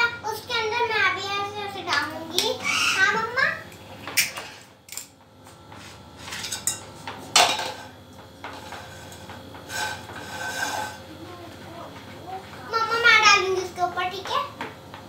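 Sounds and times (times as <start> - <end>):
spoon scraping plastic bowl: 8.5 - 11.0.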